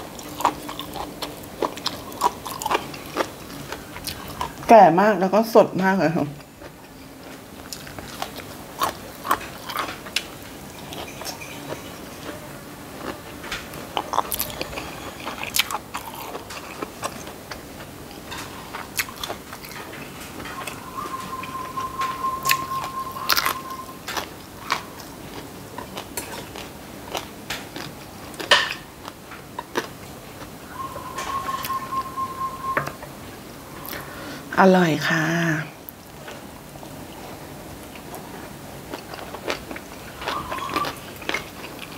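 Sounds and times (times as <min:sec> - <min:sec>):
chewing and crunching: 0:00.0 - 0:04.7, 0:06.3 - 0:31.8, 0:35.9 - 0:41.9
faint high tone: 0:20.4 - 0:24.0, 0:30.6 - 0:34.7, 0:40.2 - 0:41.0.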